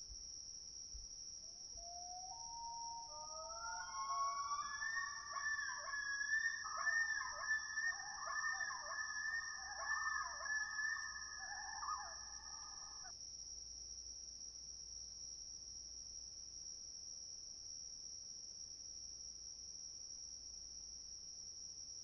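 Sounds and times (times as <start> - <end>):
crickets chirring: 0.0 - 16.4
loons calling: 2.1 - 13.1.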